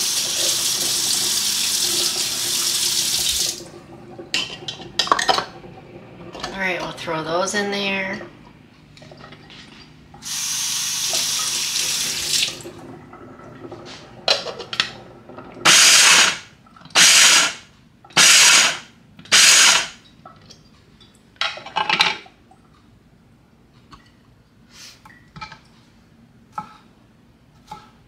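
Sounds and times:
electric food chopper whirring: 15.7 - 16.4, 18.2 - 19.9.

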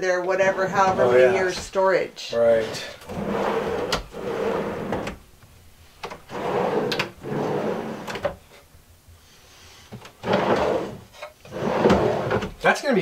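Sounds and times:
shelves rolling on drawer slides: 0.4 - 1.8, 2.6 - 5.2, 6.0 - 8.4, 10.0 - 12.6.

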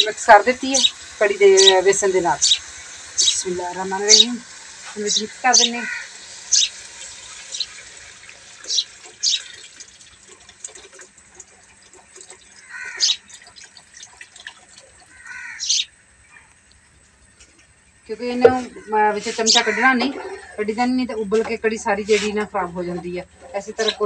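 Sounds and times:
batter pouring into pot: 6.0 - 12.8.

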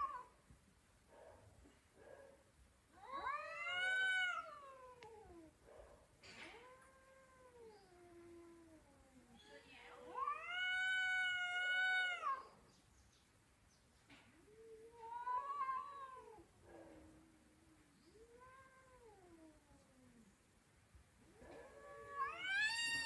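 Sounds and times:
cats yowling: 3.0 - 5.6, 6.4 - 12.6, 14.4 - 20.3, 21.3 - 23.0.

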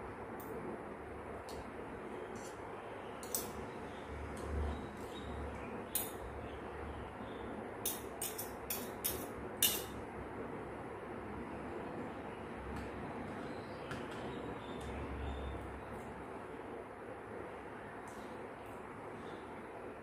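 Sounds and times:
cutlery clinking on a plate: 7.9 - 10.0.

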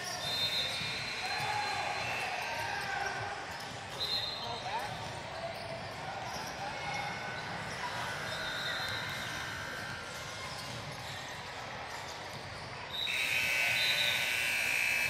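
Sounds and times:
electronic buzzer: 13.0 - 15.0.

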